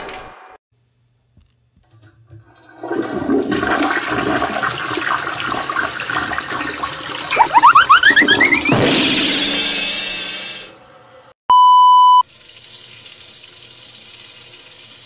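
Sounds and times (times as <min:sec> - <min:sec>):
toilet flushing: 0:02.0 - 0:11.4
water gurgling: 0:02.8 - 0:08.7.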